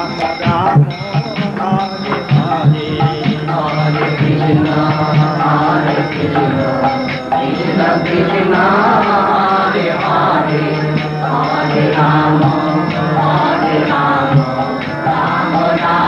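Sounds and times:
chant singing: 0:00.0 - 0:16.0
instrumental accompaniment: 0:00.0 - 0:16.0.

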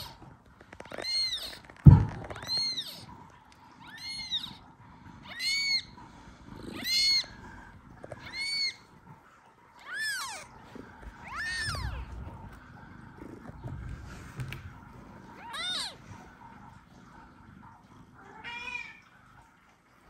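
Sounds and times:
newborn kitten meowing: 0:00.9 - 0:03.1, 0:03.8 - 0:04.6, 0:05.2 - 0:05.9, 0:06.7 - 0:07.3, 0:08.2 - 0:08.8, 0:09.8 - 0:10.5, 0:11.1 - 0:12.0, 0:15.4 - 0:16.0.

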